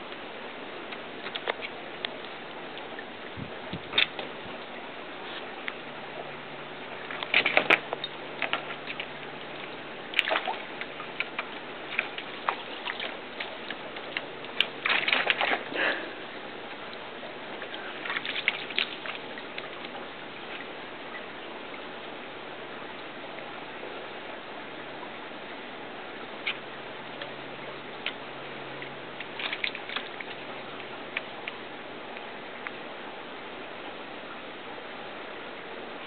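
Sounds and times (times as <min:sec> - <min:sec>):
background hiss: 0:00.0 - 0:36.0
dog splashing water: 0:07.0 - 0:16.2, 0:17.6 - 0:20.5.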